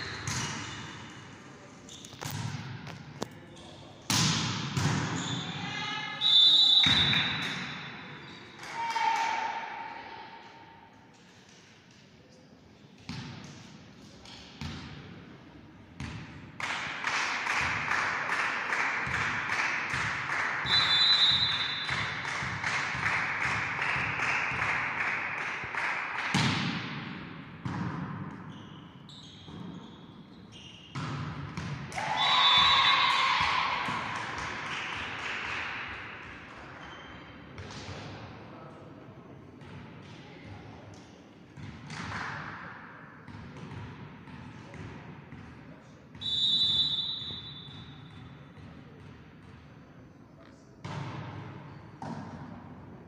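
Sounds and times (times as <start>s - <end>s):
volleyball hits and thuds: 4.1s - 5.2s, 26.3s - 28.4s, 50.8s - 52.7s.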